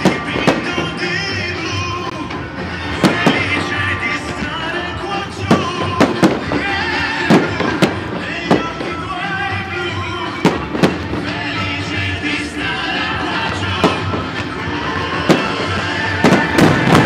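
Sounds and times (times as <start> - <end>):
loud music: 0.0 - 17.0
firework shells bursting: 3.0 - 4.4, 15.2 - 17.0.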